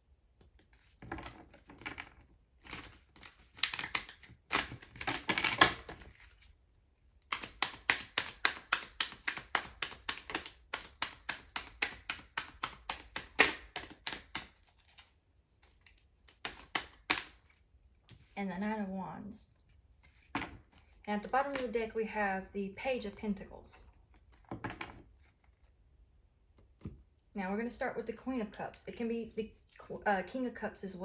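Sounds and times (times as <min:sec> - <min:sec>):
cards sliding and rustling: 0:07.2 - 0:18.4, 0:20.0 - 0:21.0.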